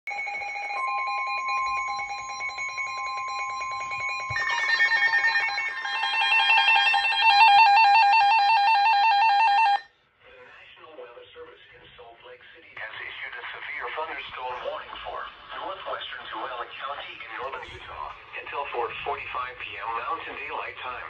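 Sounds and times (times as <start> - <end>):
rapidly warbling alarm: 0.1 - 9.9.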